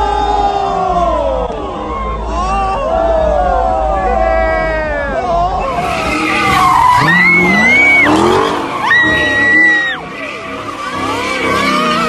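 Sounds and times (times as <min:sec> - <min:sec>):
crowd voices and shouts: 0:00.0 - 0:12.0
car engine revving: 0:05.6 - 0:12.0
tyres screeching: 0:05.6 - 0:12.0.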